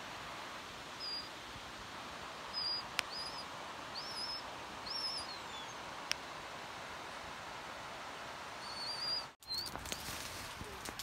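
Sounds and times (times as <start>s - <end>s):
background hiss: 0.0s - 11.0s
bird whistling song: 1.0s - 1.3s, 2.5s - 5.8s, 8.6s - 10.1s.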